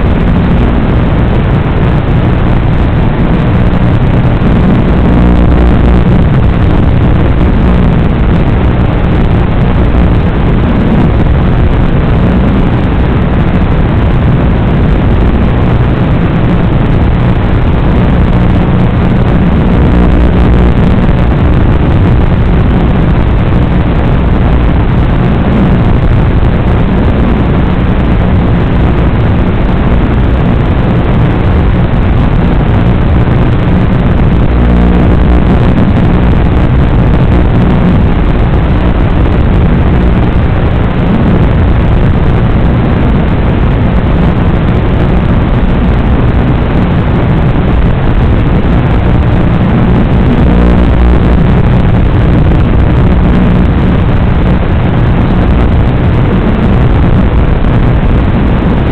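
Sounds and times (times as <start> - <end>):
rc car motor rumble: 3.3 - 8.1, 34.0 - 39.0, 49.2 - 53.6.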